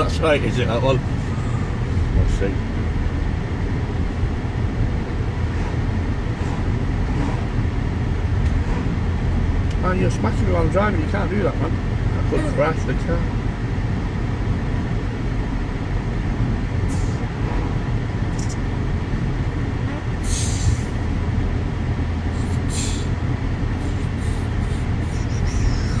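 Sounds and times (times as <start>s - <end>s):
car engine and tyre drone: 0.0s - 26.0s
short rustling hisses: 20.2s - 20.9s, 22.4s - 23.2s.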